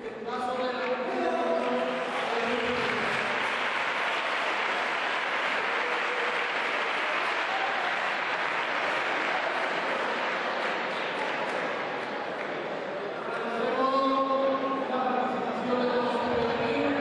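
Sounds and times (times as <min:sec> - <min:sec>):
audience applauding: 0:01.1 - 0:13.5.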